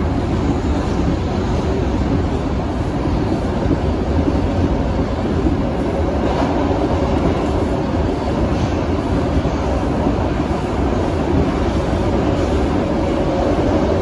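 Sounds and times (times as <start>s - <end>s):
subway car wheels rumbling on rail: 0.0s - 14.0s.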